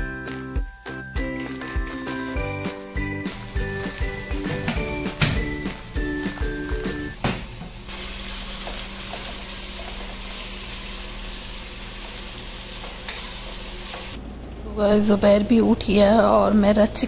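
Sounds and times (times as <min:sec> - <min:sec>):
chicken sizzling in a pot: 0:07.7 - 0:14.2.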